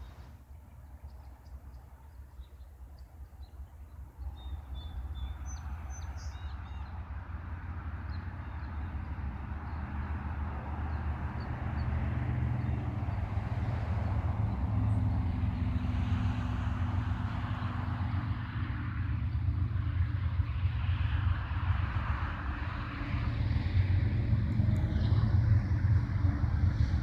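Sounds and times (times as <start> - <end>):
diesel locomotive engines droning: 0.0 - 27.0.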